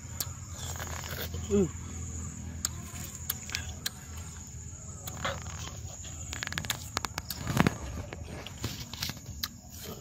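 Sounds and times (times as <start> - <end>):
chewing crisp fruit: 0.0 - 10.0
mouth clicks: 5.0 - 5.6.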